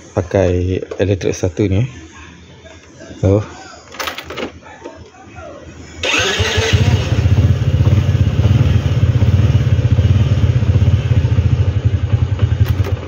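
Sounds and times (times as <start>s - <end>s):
motorcycle engine idling: 6.2s - 13.0s.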